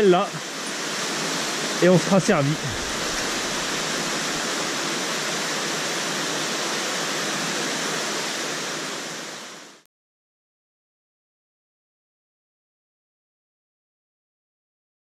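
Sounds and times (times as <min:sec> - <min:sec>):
waterfall pouring into a pool: 0:00.0 - 0:09.8.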